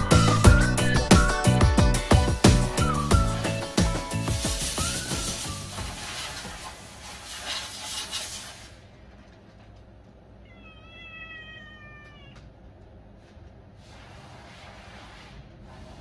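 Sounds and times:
kitten meowing: 10.4s - 12.4s.

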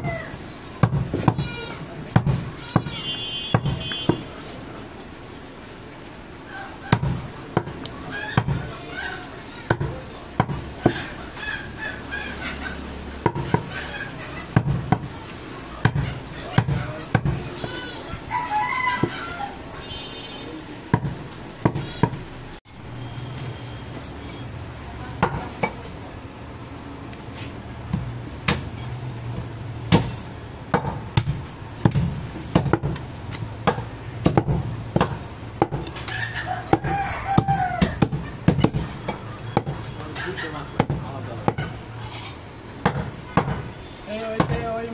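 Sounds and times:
cleaver chopping on wooden block: 33.6s - 36.1s.

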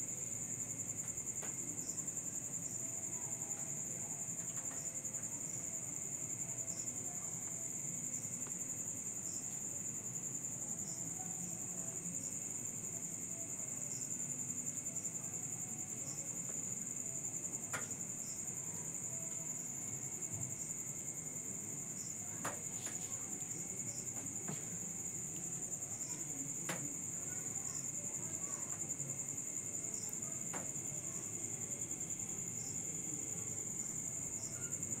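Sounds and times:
crickets trilling: 0.0s - 35.0s.

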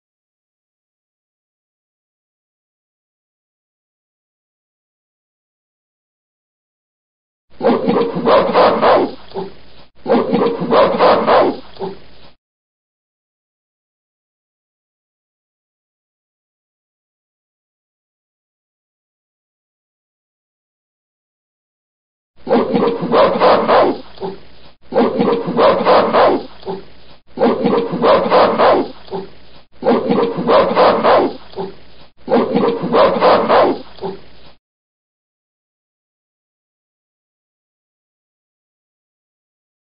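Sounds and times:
gorilla rough calls: 22.5s - 34.2s.

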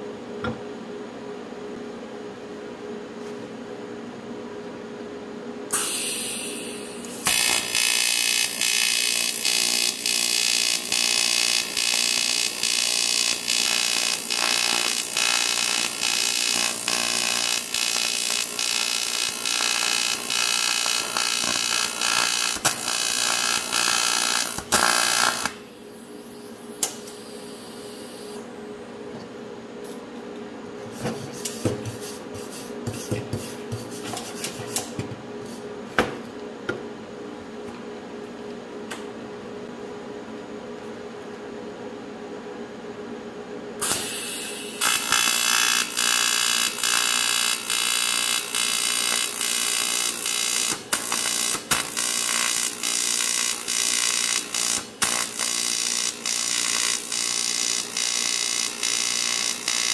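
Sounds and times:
welding arc buzzing: 5.7s - 25.7s, 43.8s - 59.9s.

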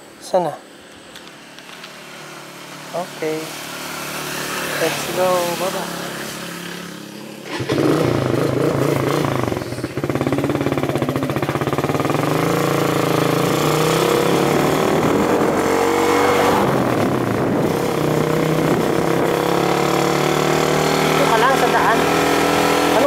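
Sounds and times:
motorcycle engine accelerating: 1.4s - 23.0s
wind rushing on microphone: 14.4s - 19.6s.

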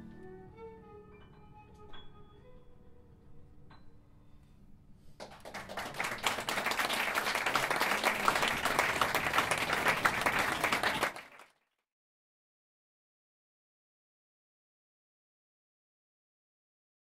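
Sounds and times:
audience applauding: 5.2s - 11.6s.

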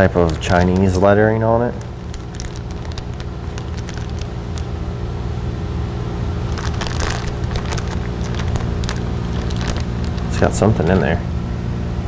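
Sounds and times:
plastic bag crinkling: 0.0s - 4.8s, 6.4s - 11.2s
low machine hum: 0.0s - 12.0s.

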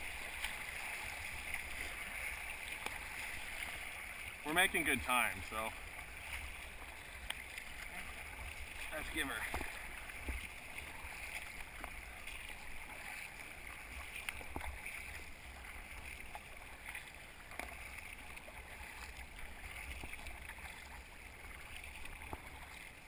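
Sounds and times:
paddles dipping and splashing: 0.0s - 23.0s
water rushing along hull: 0.0s - 23.0s.

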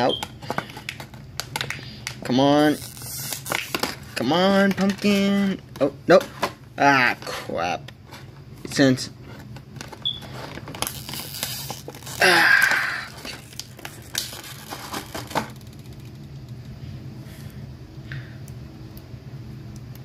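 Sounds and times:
low steady hum: 0.0s - 20.0s
plastic packaging crinkling: 0.2s - 5.6s, 9.7s - 16.3s.

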